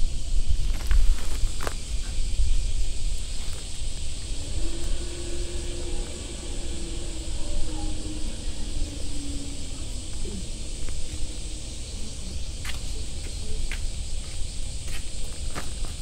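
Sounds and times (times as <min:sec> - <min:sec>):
high-pitched insect drone: 0:00.0 - 0:16.0
low rumble: 0:01.9 - 0:15.9.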